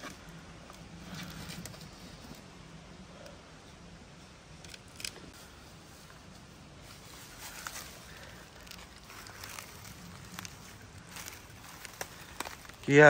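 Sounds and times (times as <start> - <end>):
footsteps on dry leaves and twigs: 5.3 - 13.0.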